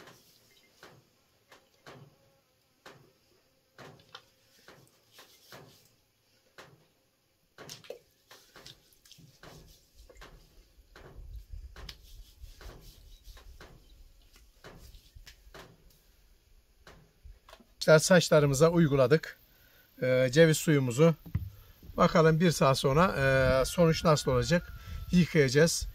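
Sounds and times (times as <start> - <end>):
liquid splashing and dripping: 7.6 - 10.5.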